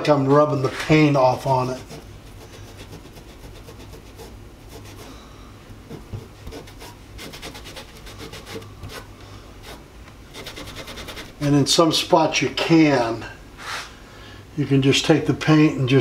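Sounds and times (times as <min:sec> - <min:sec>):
rag scrubbing metal: 0:00.0 - 0:05.1, 0:05.9 - 0:11.4.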